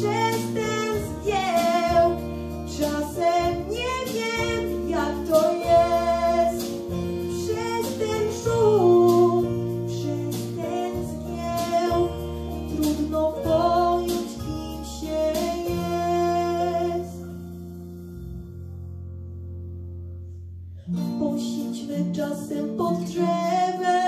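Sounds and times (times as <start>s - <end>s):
girl singing into microphone: 0.0s - 17.2s, 21.0s - 24.0s
instrumental backing track: 0.0s - 24.0s.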